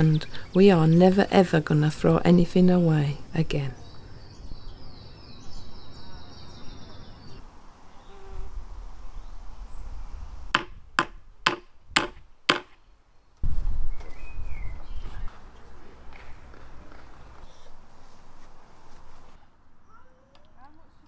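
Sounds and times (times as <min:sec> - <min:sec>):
faint outdoor background: 0:00.0 - 0:21.0
hammer striking: 0:10.6 - 0:12.8.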